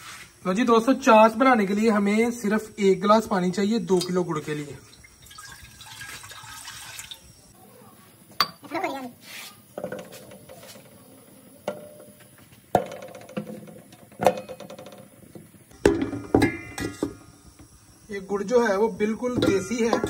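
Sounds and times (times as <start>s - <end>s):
lumps knocking into metal pot: 15.8s - 17.3s, 19.3s - 20.0s.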